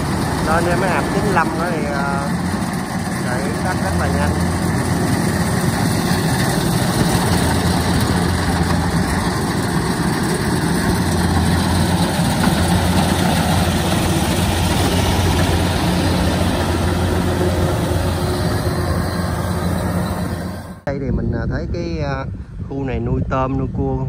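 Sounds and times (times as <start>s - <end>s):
harvesting machinery clatter: 0.0s - 20.5s
diesel engine droning: 0.0s - 20.9s.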